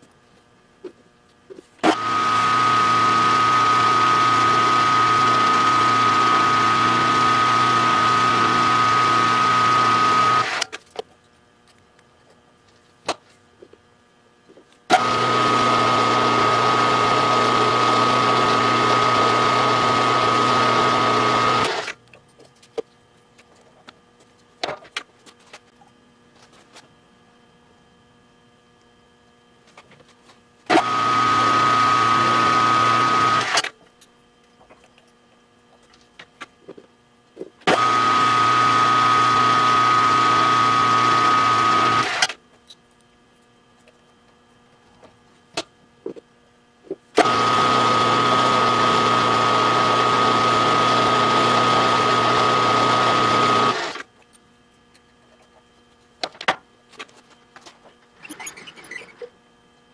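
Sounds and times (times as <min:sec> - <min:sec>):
drill press motor whining: 0:01.8 - 0:10.8, 0:14.9 - 0:22.0, 0:30.7 - 0:33.7, 0:37.6 - 0:42.4, 0:47.2 - 0:54.1.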